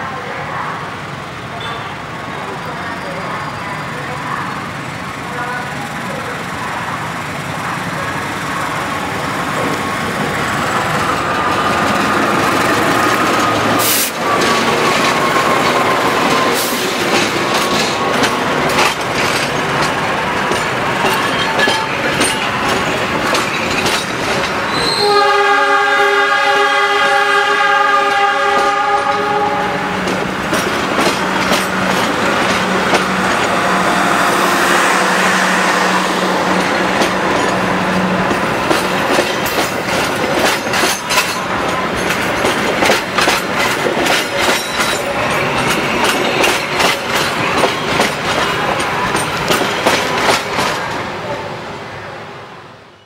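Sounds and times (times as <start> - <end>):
train wheels clattering over rail joints: 9.5 - 24.8, 28.5 - 33.8, 36.4 - 51.0
train horn chord: 24.8 - 30.0.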